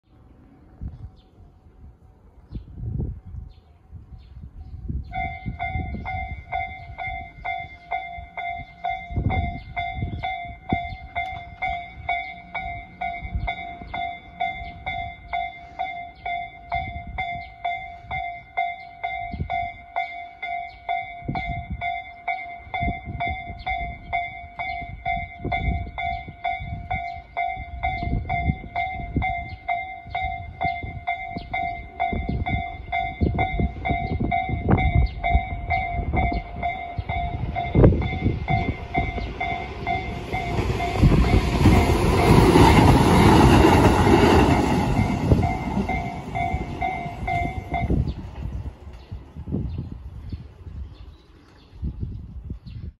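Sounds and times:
train passing: 0.1s - 51.6s
level crossing bell ringing: 5.2s - 42.7s, 44.1s - 48.2s.

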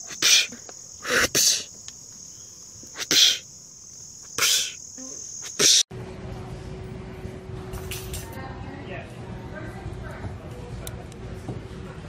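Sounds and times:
crickets trilling: 0.0s - 5.9s.

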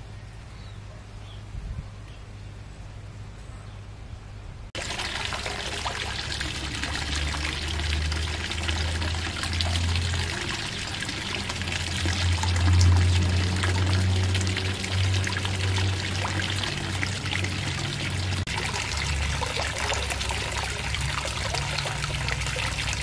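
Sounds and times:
water feature trickling and splashing: 4.8s - 23.0s.

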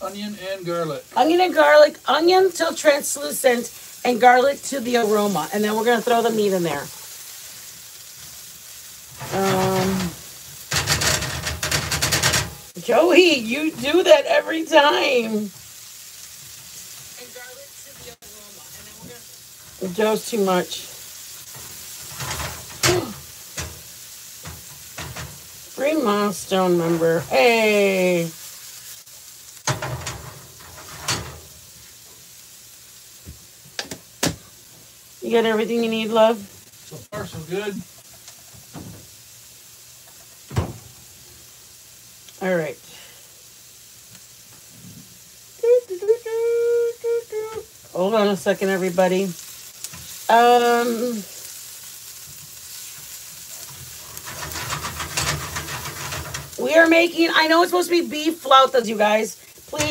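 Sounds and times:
onion and garlic sizzling: 0.0s - 59.9s
spatula scraping pan: 9.1s - 15.7s, 18.0s - 27.7s, 29.7s - 31.5s, 49.4s - 57.1s
pan knocking on grate: 9.2s - 12.8s, 21.6s - 25.4s, 29.6s - 31.5s, 40.2s - 41.0s, 53.8s - 56.6s.

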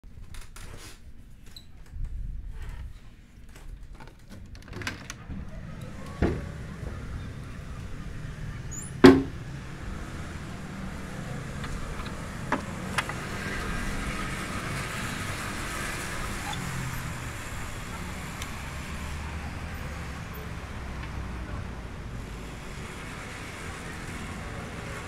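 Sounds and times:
wooden shutters knocking: 4.5s - 6.7s, 9.0s - 9.5s
street traffic: 4.8s - 25.0s.

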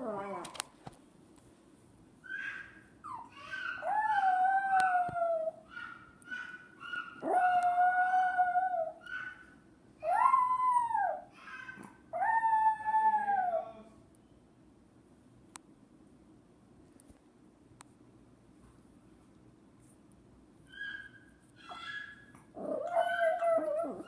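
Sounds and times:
small dog howling and whining: 0.0s - 0.6s, 2.3s - 9.4s, 10.0s - 13.9s, 20.7s - 24.0s.

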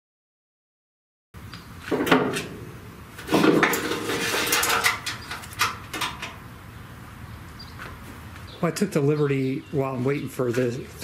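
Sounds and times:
handling clatter and rustling: 3.2s - 6.4s.

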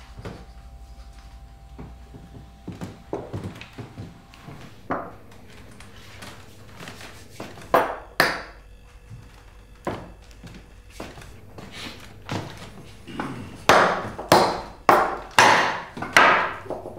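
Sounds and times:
tableware knocks and clinks: 13.2s - 16.9s.

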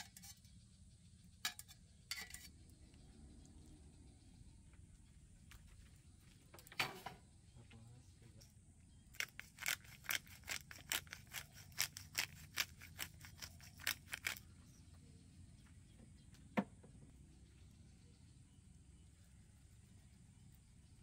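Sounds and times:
pepper mill grinding clicks: 9.2s - 14.4s.

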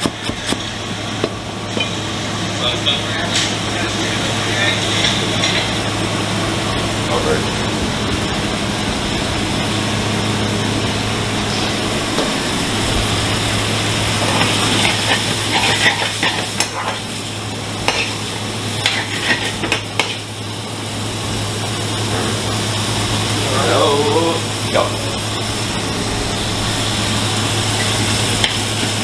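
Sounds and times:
frying sizzle: 0.0s - 29.0s
steady low hum: 0.0s - 29.0s
metal spatula scraping steel pan: 14.4s - 17.0s.

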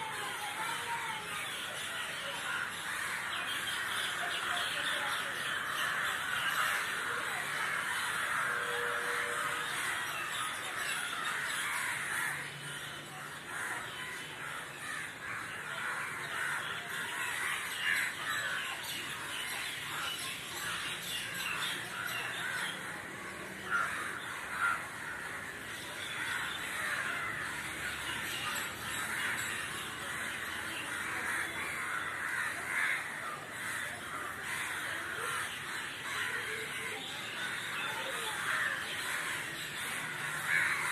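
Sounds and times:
flock of crows cawing: 0.0s - 40.9s
loud single crow caws: 5.6s - 10.2s, 23.7s - 27.7s, 31.0s - 36.8s.

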